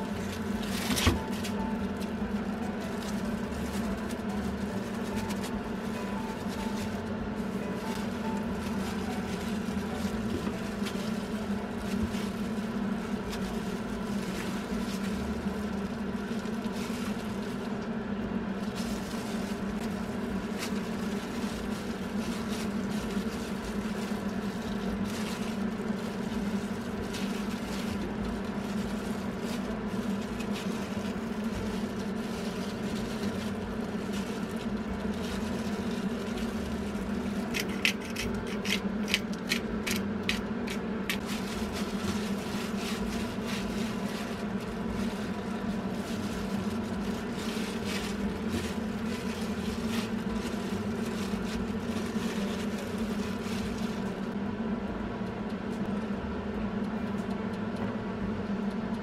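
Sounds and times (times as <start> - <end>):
gloved hands kneading meat: 0.0 - 54.3
sharp plastic crinkles: 0.0 - 54.4
mechanical hum: 0.0 - 59.0.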